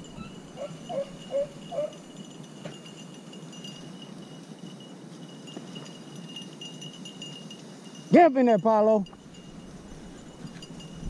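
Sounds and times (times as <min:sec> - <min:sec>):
dog yipping: 0:00.0 - 0:02.0.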